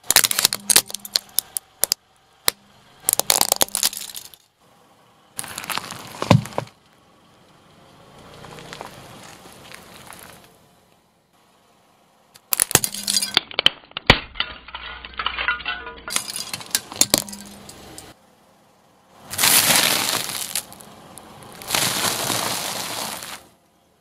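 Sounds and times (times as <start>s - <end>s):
sharp cracks and clicks: 0.0s - 4.4s, 12.4s - 14.5s
car tyre rolling on asphalt: 0.0s - 13.2s, 16.2s - 24.0s
crunching under wheel: 5.4s - 7.0s, 8.2s - 10.6s, 19.3s - 23.6s.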